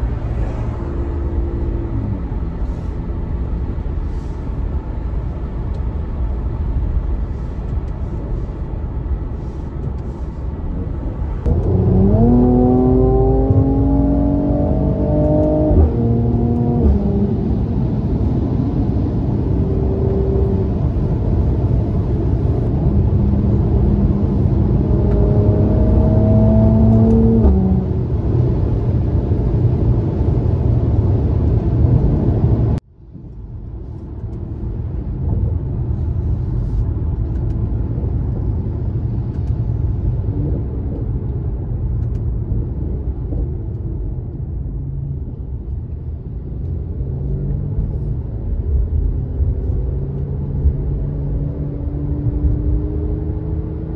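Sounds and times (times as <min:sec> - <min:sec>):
car engine accelerating: 0:11.4 - 0:32.8, 0:35.3 - 0:53.9.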